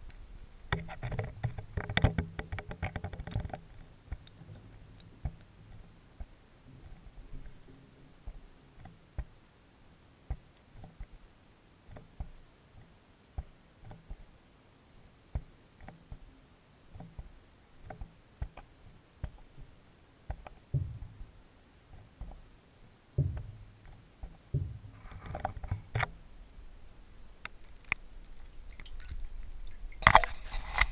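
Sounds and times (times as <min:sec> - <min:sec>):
muffled underwater clicks and knocks: 0:00.0 - 0:09.4, 0:10.3 - 0:11.2, 0:11.9 - 0:14.3, 0:15.3 - 0:16.3, 0:16.9 - 0:22.5, 0:23.1 - 0:26.2, 0:27.4 - 0:30.9
rush of water: 0:27.0 - 0:30.9.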